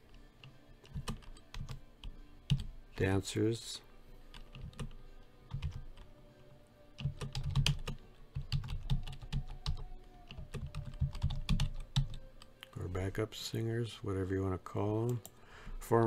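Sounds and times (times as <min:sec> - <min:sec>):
keyboard typing clicks: 0:04.3 - 0:06.1, 0:07.0 - 0:12.7.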